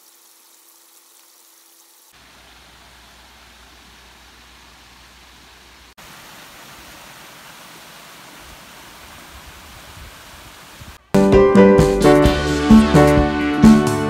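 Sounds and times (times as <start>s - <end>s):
stream water rushing: 0.0s - 11.0s.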